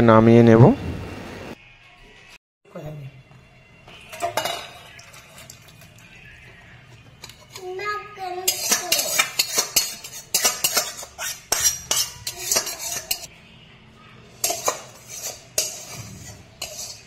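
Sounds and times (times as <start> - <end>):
curry being poured: 4.8 - 6.2
metal utensil scraping a wok: 8.4 - 13.3, 14.3 - 17.0.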